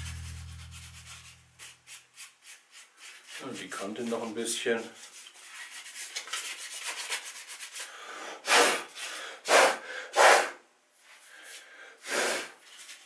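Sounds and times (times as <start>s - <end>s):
sandpaper rubbing on cork: 0.0s - 7.9s
puffs of breath blowing: 7.9s - 10.6s, 11.3s - 12.6s.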